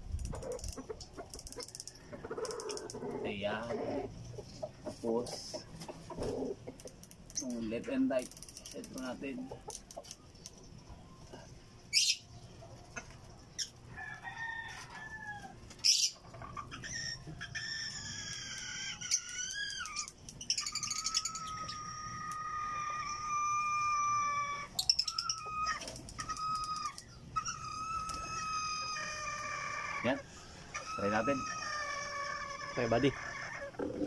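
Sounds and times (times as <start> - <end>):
roosters crowing: 0.3 - 4.4, 11.3 - 34.0.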